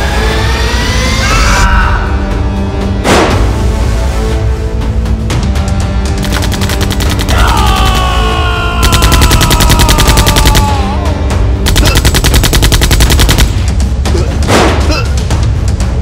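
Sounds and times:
background music: 0.0s - 16.0s
automatic gunfire: 6.2s - 8.1s, 8.8s - 10.8s, 11.6s - 13.7s.

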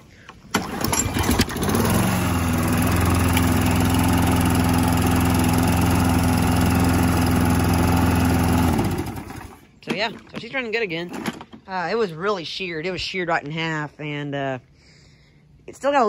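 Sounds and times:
lawn mower engine running: 0.2s - 11.6s.

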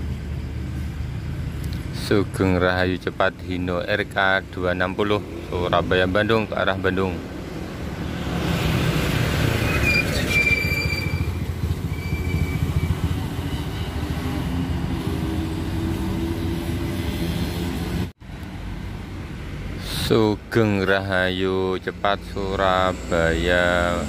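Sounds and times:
bus passing: 0.0s - 24.0s
box truck passing: 7.2s - 18.1s
thin high squeal: 9.6s - 13.9s.

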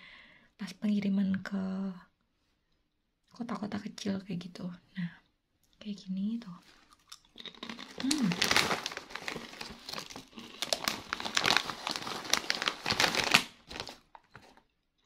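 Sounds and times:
snack bag crinkling: 6.6s - 14.7s.

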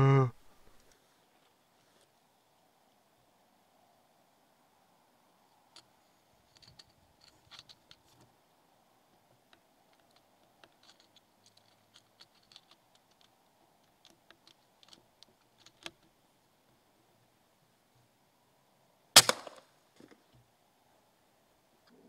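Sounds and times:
light clicks and crinkles: 5.6s - 8.4s, 9.0s - 16.9s.

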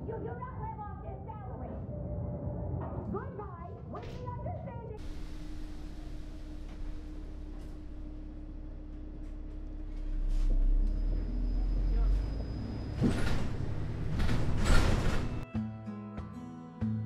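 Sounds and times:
bus engine rumble: 4.0s - 15.4s.

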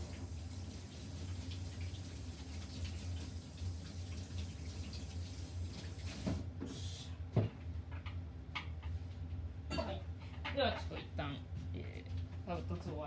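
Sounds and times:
water running from tap: 0.0s - 6.4s.

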